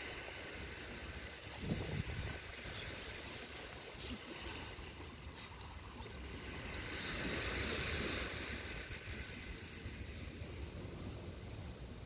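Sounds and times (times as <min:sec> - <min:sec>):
small waves lapping on shore: 0:00.0 - 0:12.0
low wind rumble: 0:00.7 - 0:03.5.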